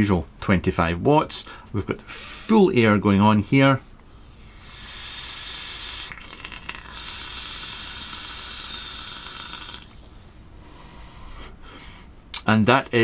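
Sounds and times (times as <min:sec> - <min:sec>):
vape coil sizzling: 0:04.5 - 0:10.0
vape draw air rushing: 0:04.5 - 0:10.0.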